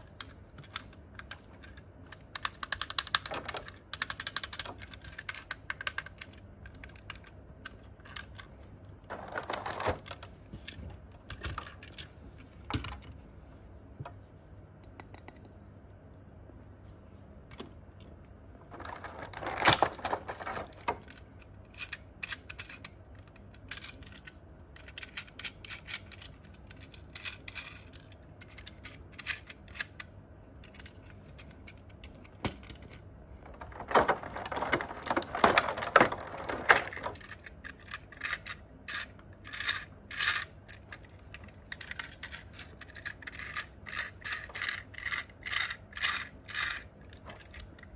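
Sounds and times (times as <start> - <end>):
plastic toy parts clicking: 0.1 - 8.5, 14.8 - 15.5, 18.7 - 47.9.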